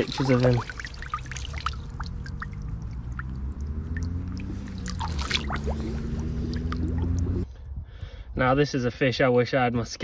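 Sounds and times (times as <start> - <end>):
small water splashes: 0.0 - 7.4
water dripping and trickling: 0.0 - 7.4
steady low rumble: 0.0 - 8.4.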